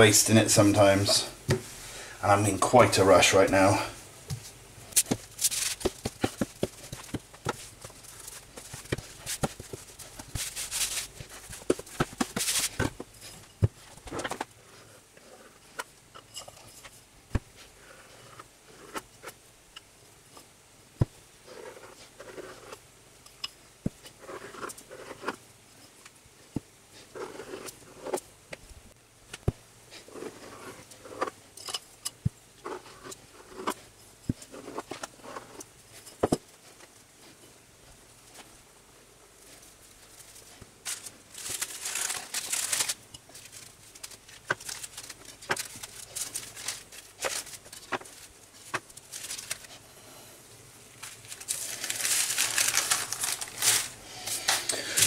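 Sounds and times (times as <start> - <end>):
paper scraping and swishing: 4.4 - 15.5, 39.4 - 49.8, 51.0 - 55.0
rolling pin rolling over pastry: 26.9 - 28.2, 29.9 - 31.4.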